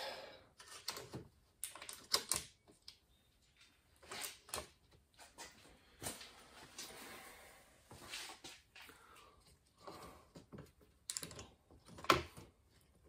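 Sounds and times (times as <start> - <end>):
small metal rivets clicking: 11.0 - 12.2.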